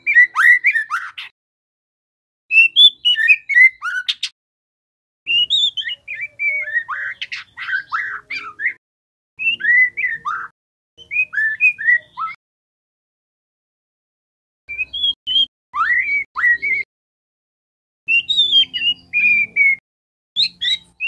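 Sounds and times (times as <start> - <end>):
young bird singing whistled notes: 0.0 - 1.3, 2.5 - 4.3, 5.3 - 8.8, 9.4 - 12.4, 14.7 - 16.9, 18.1 - 19.8, 20.4 - 21.0.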